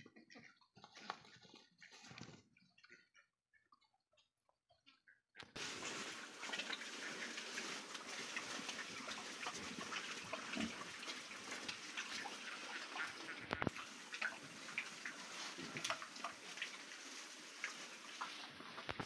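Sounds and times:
pigs chewing wetly: 0:00.0 - 0:19.0
leaves rustling: 0:05.6 - 0:12.7, 0:13.6 - 0:19.0.

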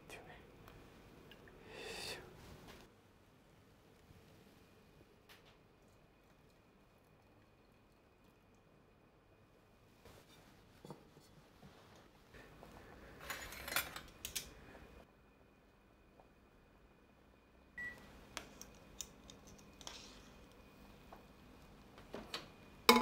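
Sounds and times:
cookware and utensils clinking: 0:13.2 - 0:14.5.

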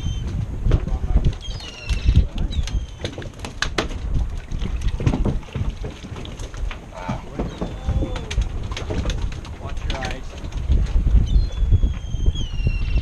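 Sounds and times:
wind buffeting microphone: 0:00.0 - 0:13.0
faint voices: 0:06.9 - 0:08.5.

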